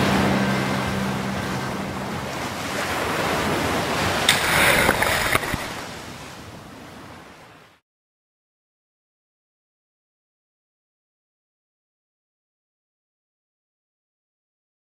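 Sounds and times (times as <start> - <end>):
low sustained music chord: 0.0 - 4.1
ocean surf on a beach: 0.0 - 7.8.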